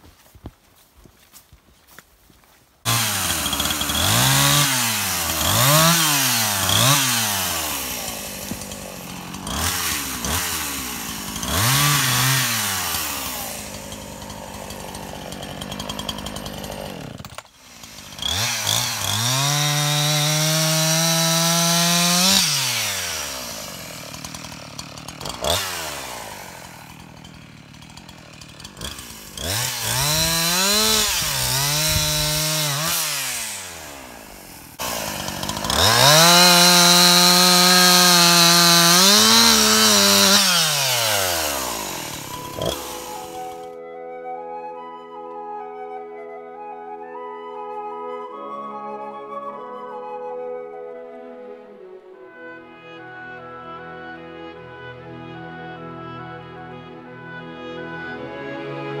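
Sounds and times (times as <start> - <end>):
chainsaw cutting log: 2.8 - 43.8
chainsaw revving and idling: 2.8 - 43.8.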